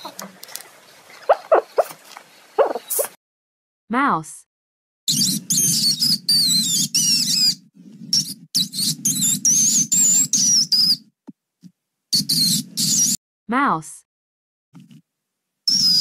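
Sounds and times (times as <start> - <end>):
mouse squeaking: 1.2 - 2.0, 2.6 - 3.2, 5.1 - 11.0, 12.2 - 13.2, 15.7 - 16.0.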